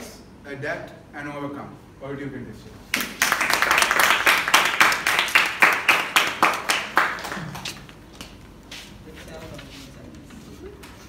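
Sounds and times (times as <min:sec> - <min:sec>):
audience applauding: 0:03.0 - 0:08.0.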